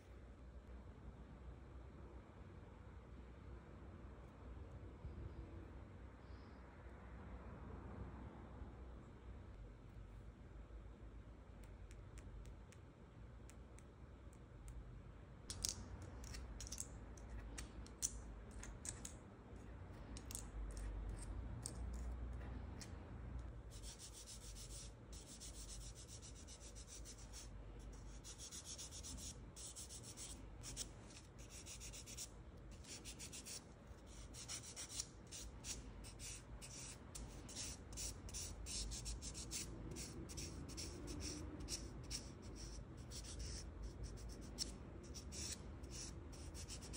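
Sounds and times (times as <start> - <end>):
nail file scratching fingernail: 23.7 - 46.9.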